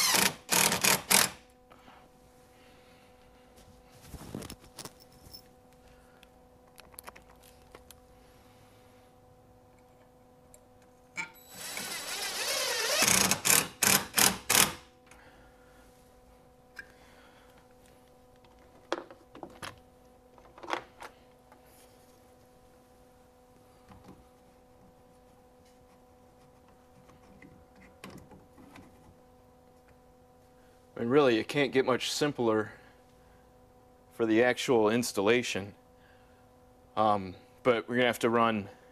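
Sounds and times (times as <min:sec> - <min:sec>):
cordless drill driving screw: 0:00.0 - 0:01.4, 0:11.4 - 0:14.8.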